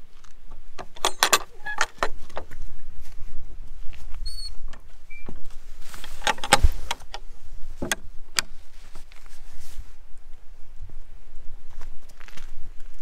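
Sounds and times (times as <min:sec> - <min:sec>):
metal gate latch clinking: 0:00.8 - 0:02.2, 0:06.2 - 0:07.2
gate squeak: 0:01.0 - 0:02.1, 0:04.2 - 0:05.4.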